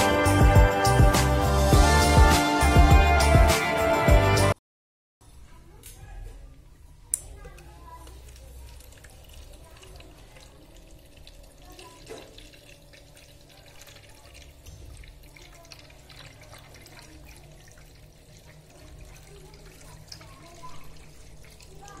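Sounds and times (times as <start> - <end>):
water drips: 7.1 - 22.0
water trickling into plastic jar: 7.6 - 22.0.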